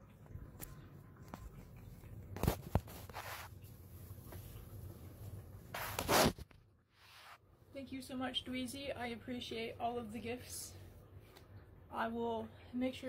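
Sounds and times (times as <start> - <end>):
fabric rustling: 2.4 - 7.4.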